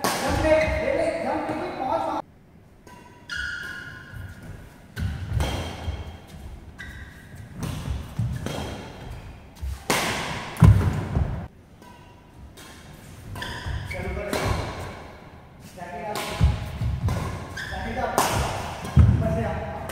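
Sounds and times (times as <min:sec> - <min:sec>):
rackets hitting shuttlecock: 0:00.0 - 0:00.9, 0:02.8 - 0:15.3, 0:16.0 - 0:19.9
shoe squeaks: 0:02.9 - 0:09.8, 0:13.0 - 0:14.9, 0:16.6 - 0:18.6.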